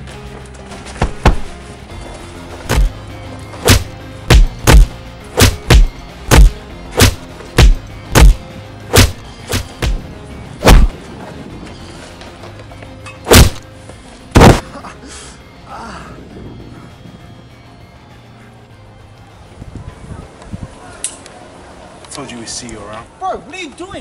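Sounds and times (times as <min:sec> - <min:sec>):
background music: 0:00.0 - 0:22.4
heavy punch thuds: 0:01.0 - 0:01.5, 0:02.7 - 0:03.0, 0:03.6 - 0:10.0, 0:10.6 - 0:11.0, 0:13.3 - 0:13.6, 0:14.4 - 0:14.6.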